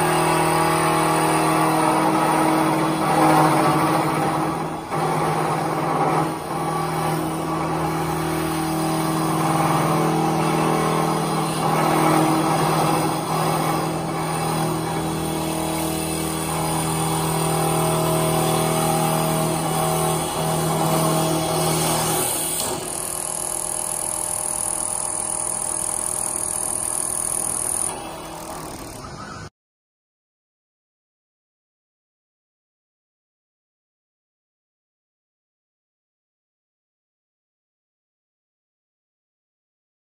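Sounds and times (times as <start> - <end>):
wood being cut: 0.0 - 29.3
lathe motor hum: 0.0 - 29.4.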